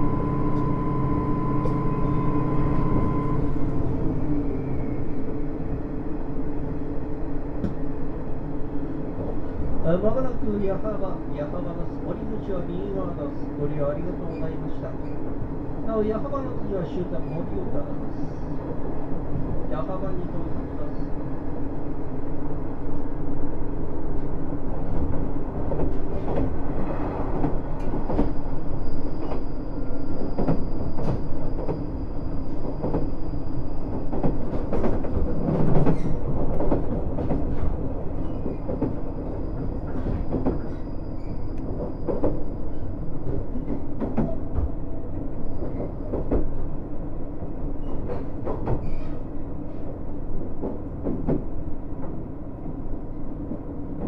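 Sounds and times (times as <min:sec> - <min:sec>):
train rolling noise: 0:22.5 - 0:54.0.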